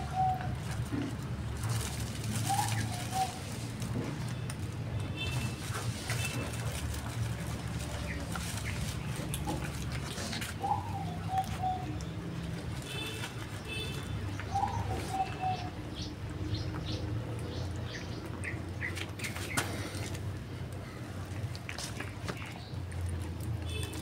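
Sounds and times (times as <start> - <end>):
dove cooing: 0.0 - 1.1, 1.7 - 3.6, 10.2 - 12.1, 14.5 - 16.1
cats chewing: 0.0 - 24.0.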